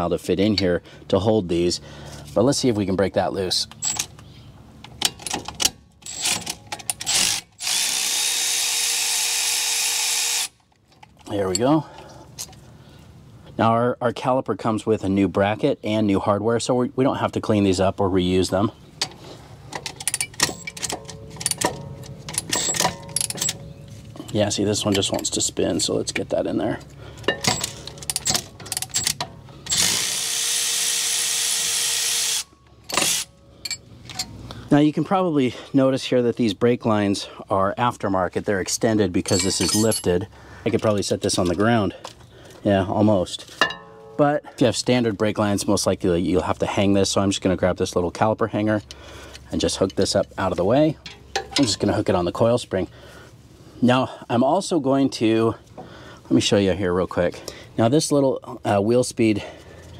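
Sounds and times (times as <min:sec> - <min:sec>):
metal tools clinking: 0:03.7 - 0:04.2, 0:19.0 - 0:25.5, 0:27.2 - 0:30.0, 0:32.9 - 0:34.4, 0:39.2 - 0:41.8, 0:49.7 - 0:52.0
cordless electric ratchet running: 0:07.1 - 0:10.6, 0:29.6 - 0:33.3.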